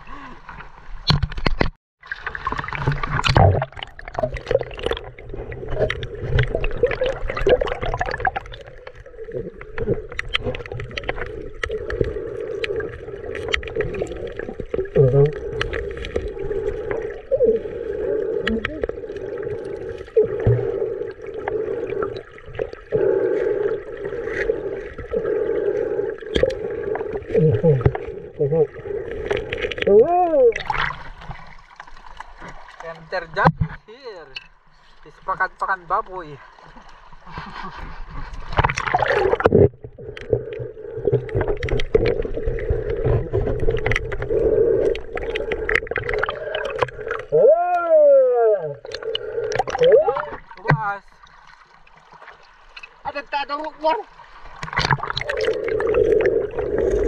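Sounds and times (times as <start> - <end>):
water gurgling: 0.0 - 57.0
rocks clicking and scraping underwater: 1.0 - 17.4, 26.2 - 30.0, 30.6 - 35.2, 36.8 - 47.4, 48.8 - 53.1, 54.4 - 57.0.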